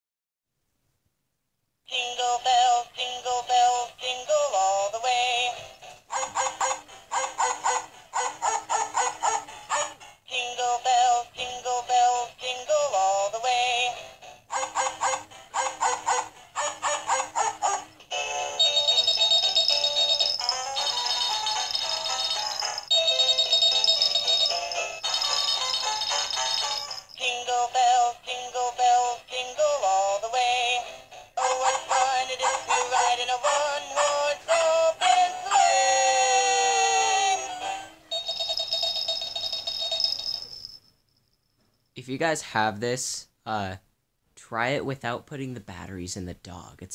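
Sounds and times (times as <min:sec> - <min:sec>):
toy synthesized voice singing: 0:01.9 - 0:38.9
toy instrumental high notes: 0:17.9 - 0:28.0, 0:38.1 - 0:40.8.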